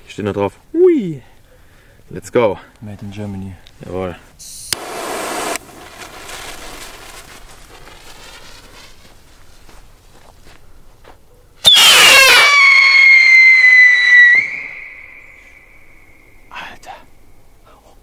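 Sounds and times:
firework rush: 4.7s - 9.7s, 11.6s - 16.2s
shrill firework whistle sliding down: 11.6s - 16.2s.

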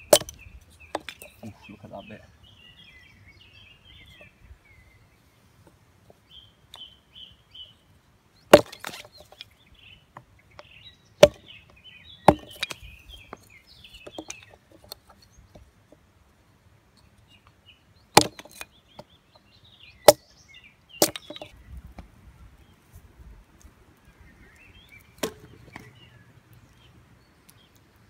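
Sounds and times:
hatchet chopping wood: 0.0s - 1.3s, 8.5s - 9.4s, 10.6s - 11.6s, 12.2s - 15.0s, 18.2s - 19.1s, 20.1s - 20.3s, 21.0s - 21.6s, 25.2s - 25.9s.

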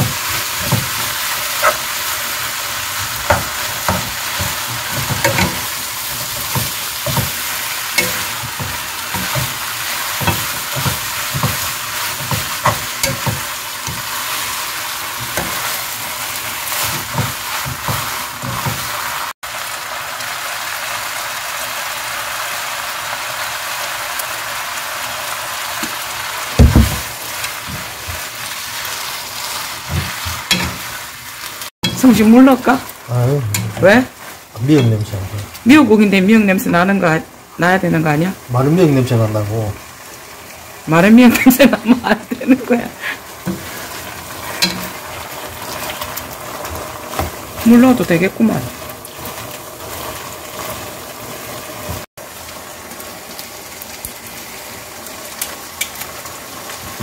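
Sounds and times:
food sizzling in a wok: 0.0s - 57.0s
wooden spatula knocking on pan: 3.2s - 5.6s, 6.2s - 7.4s, 26.6s - 27.1s
loud thump: 26.6s - 27.1s.

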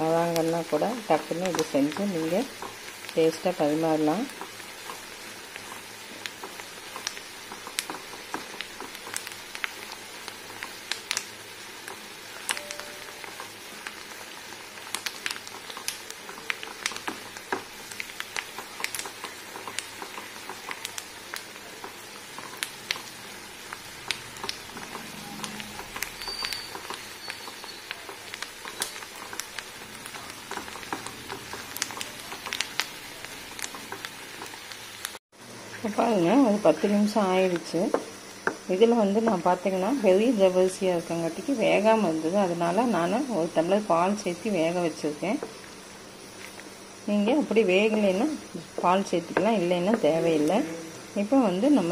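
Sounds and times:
syrup boiling with popping bubbles: 0.0s - 35.7s
steady boiling hiss: 0.0s - 51.9s.

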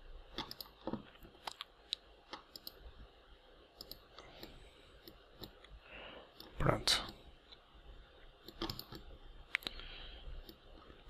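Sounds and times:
mouse and keyboard clicks: 0.3s - 2.8s, 3.8s - 5.7s, 8.4s - 9.8s.

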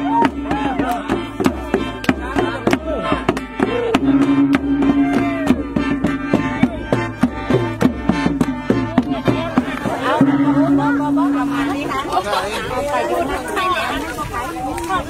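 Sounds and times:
voices singing sliding pitch: 0.0s - 7.8s, 8.6s - 12.4s
long drum beating rhythm: 0.0s - 15.0s.

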